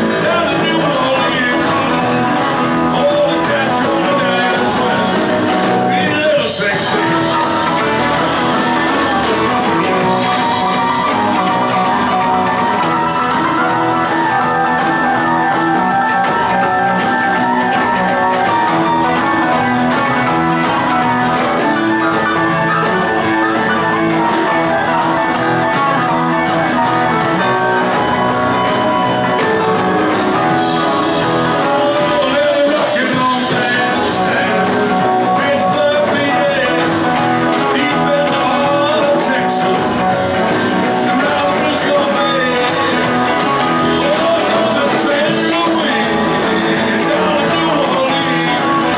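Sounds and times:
drums: 0:00.0 - 0:48.9
electric guitars: 0:00.0 - 0:48.9
keyboard: 0:00.0 - 0:48.9.

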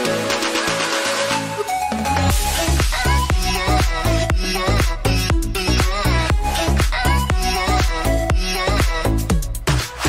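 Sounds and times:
electronic music: 0:00.0 - 0:10.0
deep bass beat: 0:02.3 - 0:10.0.

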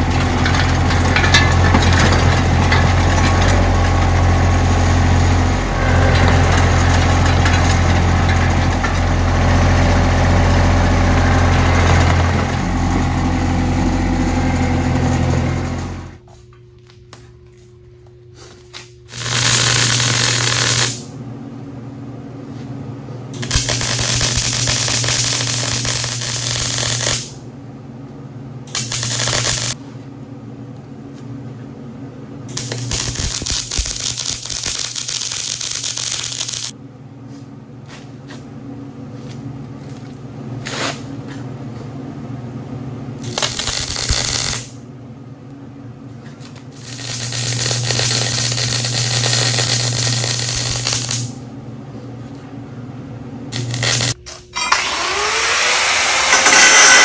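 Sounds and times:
steady low hum: 0:00.0 - 0:55.3
welder arc crackling: 0:19.1 - 0:21.1, 0:23.4 - 0:27.4, 0:28.7 - 0:29.8, 0:32.5 - 0:36.8, 0:43.2 - 0:44.8, 0:46.7 - 0:51.4, 0:53.5 - 0:54.2.

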